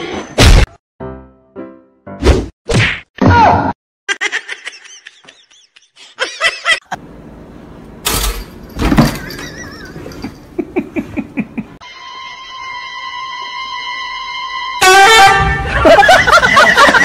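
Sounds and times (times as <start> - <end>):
people laughing: 4.1 - 7.0, 9.2 - 11.8, 15.6 - 17.0.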